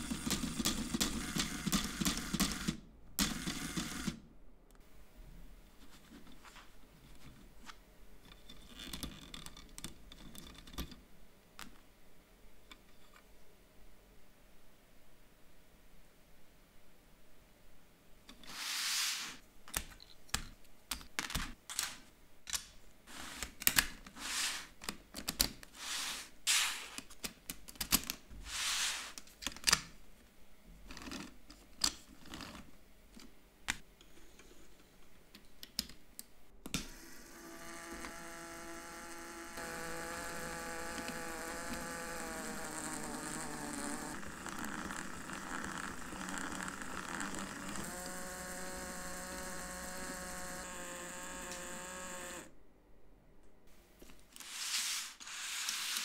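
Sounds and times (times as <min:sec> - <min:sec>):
plastic parts clicking: 0:08.2 - 0:11.0, 0:26.9 - 0:28.2, 0:29.2 - 0:29.9, 0:37.8 - 0:52.5
pencil being sharpened: 0:24.2 - 0:24.8, 0:25.7 - 0:27.0, 0:28.5 - 0:29.2, 0:54.4 - 0:56.0
electric motor whirring: 0:36.9 - 0:52.5.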